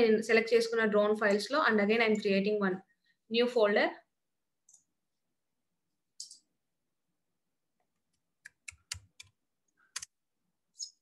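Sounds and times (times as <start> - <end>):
computer keyboard typing: 7.9 - 10.2.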